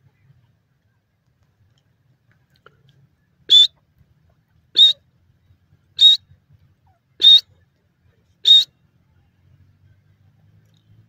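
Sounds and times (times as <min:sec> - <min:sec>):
bird whistled calls: 0:03.5 - 0:03.7, 0:04.8 - 0:05.0, 0:06.0 - 0:06.2, 0:07.2 - 0:07.5, 0:08.4 - 0:08.7.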